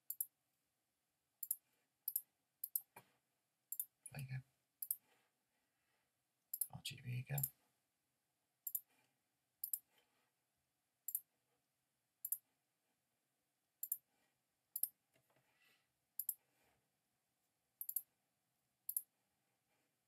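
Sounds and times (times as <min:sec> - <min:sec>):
computer mouse clicks: 0:00.1 - 0:00.3, 0:01.4 - 0:03.0, 0:03.7 - 0:03.9, 0:06.5 - 0:06.7, 0:08.7 - 0:08.9, 0:09.6 - 0:09.9, 0:11.1 - 0:11.3, 0:12.2 - 0:12.4, 0:13.8 - 0:14.0, 0:14.8 - 0:15.0, 0:16.2 - 0:16.4, 0:17.8 - 0:18.1, 0:18.9 - 0:19.1.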